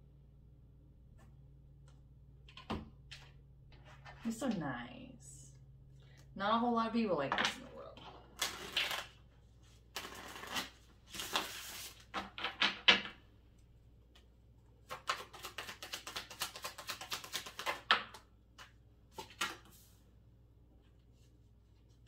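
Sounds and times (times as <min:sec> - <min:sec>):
cards overhand shuffling: 0:09.7 - 0:12.6, 0:14.9 - 0:20.0
cards riffle shuffling: 0:09.9 - 0:12.3, 0:14.9 - 0:17.8.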